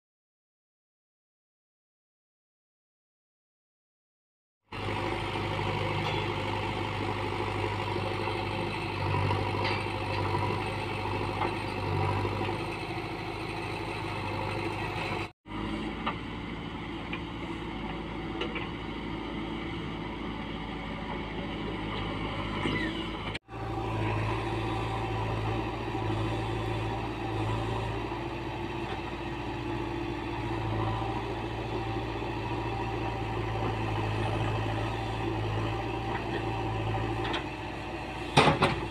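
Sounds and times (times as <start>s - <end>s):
diesel engine running: 4.7s - 38.9s.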